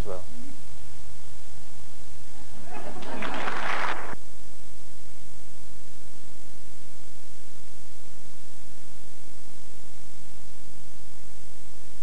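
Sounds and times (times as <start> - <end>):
low mains hum: 0.0 - 12.0
static hiss: 0.0 - 12.0.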